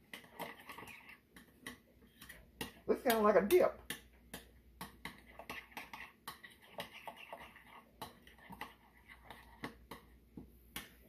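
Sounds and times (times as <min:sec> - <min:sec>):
spoon scraping glass bowl: 0:00.1 - 0:01.5, 0:05.2 - 0:09.8.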